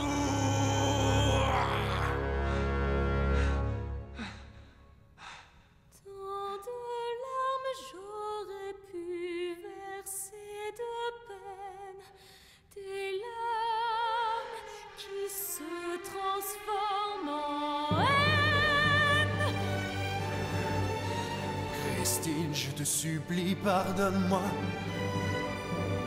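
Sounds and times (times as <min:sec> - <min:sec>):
woman singing with vibrato: 0:06.0 - 0:12.0, 0:12.7 - 0:20.0.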